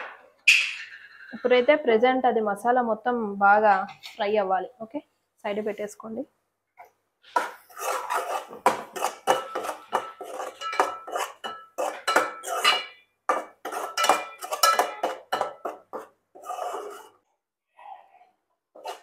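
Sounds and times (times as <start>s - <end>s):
paste frying: 7.3s - 17.2s
spoon scraping a metal pot: 7.3s - 17.2s, 18.8s - 19.0s.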